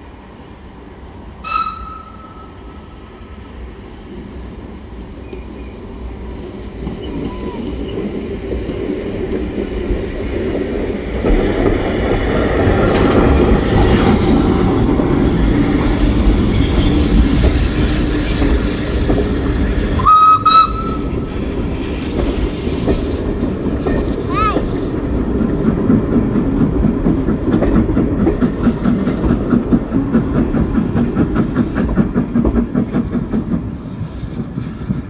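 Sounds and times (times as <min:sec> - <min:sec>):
steam locomotive passing: 0:00.0 - 0:35.0
train coaches running: 0:00.0 - 0:35.0
steam whistle blast: 0:01.4 - 0:02.6, 0:20.0 - 0:21.1.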